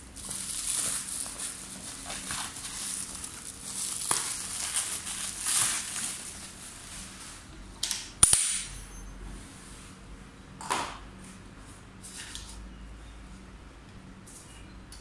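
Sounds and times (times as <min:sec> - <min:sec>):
plastic wrap crinkling: 0:00.0 - 0:07.5.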